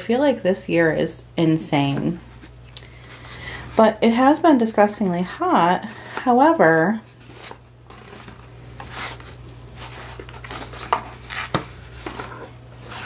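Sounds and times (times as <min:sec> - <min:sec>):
steady low hum: 0:00.0 - 0:13.0
rustling: 0:07.0 - 0:13.0.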